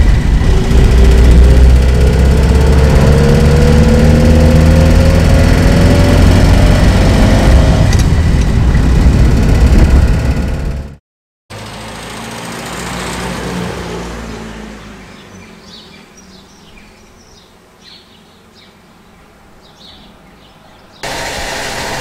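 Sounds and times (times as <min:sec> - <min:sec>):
engine idling: 0:00.0 - 0:07.1
birds chirping: 0:14.4 - 0:21.1.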